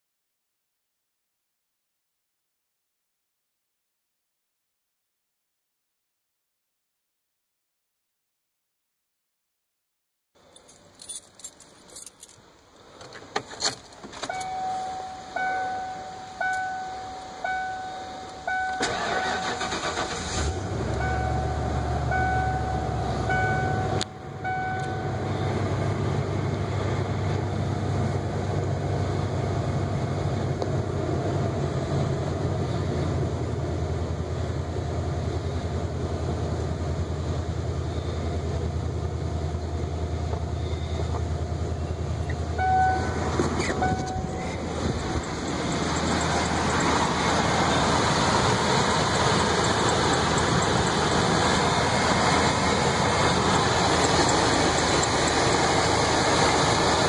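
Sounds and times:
engine cranking and idling: 12.8s - 31.5s, 35.8s - 57.0s
dashboard warning chime dinging: 14.2s - 20.2s, 20.9s - 25.4s, 41.8s - 51.2s, 53.2s - 57.0s.

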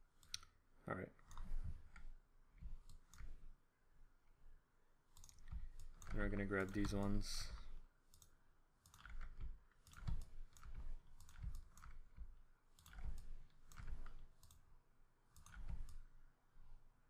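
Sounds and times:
computer mouse clicking: 0.1s - 0.5s, 1.2s - 3.6s, 5.1s - 14.7s, 15.3s - 16.2s.

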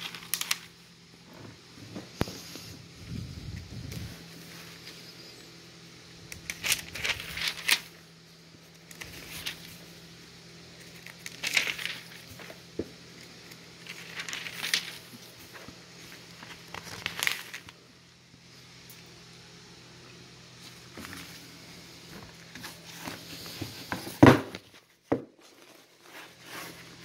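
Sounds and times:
paper pages rustling: 0.0s - 0.8s, 6.3s - 8.0s, 8.6s - 10.0s, 10.7s - 17.8s, 20.6s - 21.5s, 24.2s - 27.0s
faint low hum: 0.0s - 27.0s.

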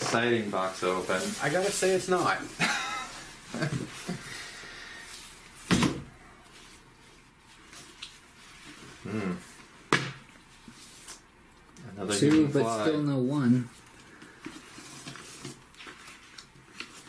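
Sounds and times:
comic books rustling: 0.0s - 4.3s, 13.5s - 17.0s
thump on table: 5.7s - 6.1s, 9.9s - 10.2s.

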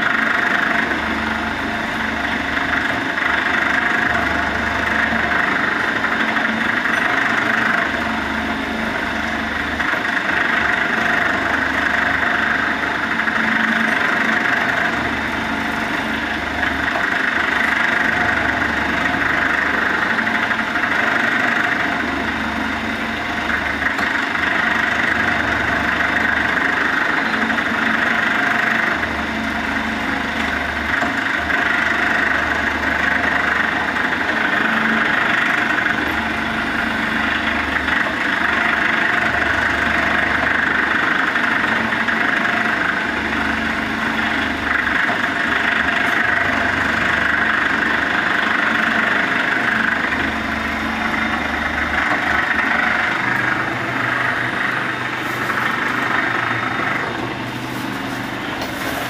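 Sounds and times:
low cycling drone: 0.0s - 59.0s
machine motor and chain hum: 0.0s - 59.0s.

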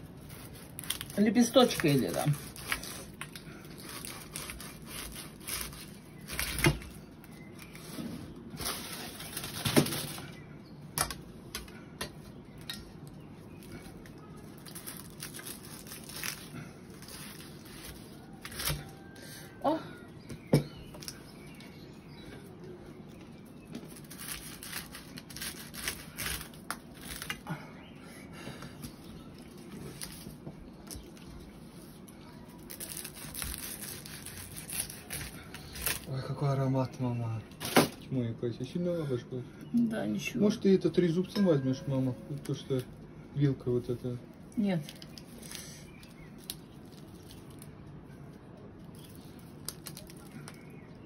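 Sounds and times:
knife cutting crunchy crust: 0.2s - 8.0s, 23.8s - 27.4s, 32.5s - 36.1s.

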